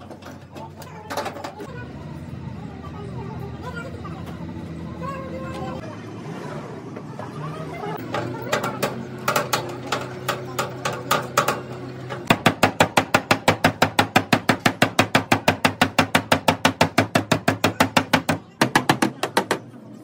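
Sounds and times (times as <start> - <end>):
hammer striking steel panel: 8.2 - 19.7.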